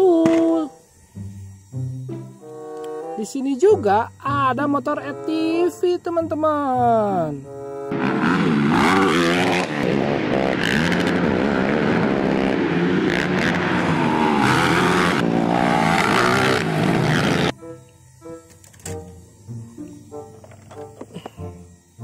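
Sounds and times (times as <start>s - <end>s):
quad bike engines revving: 7.9s - 17.6s.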